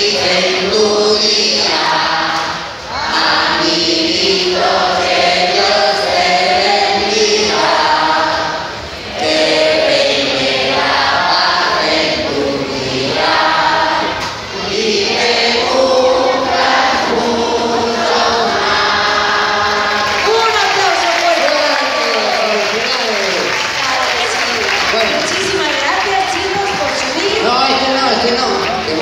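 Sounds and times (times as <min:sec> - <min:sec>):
many voices singing together: 0:00.0 - 0:21.0.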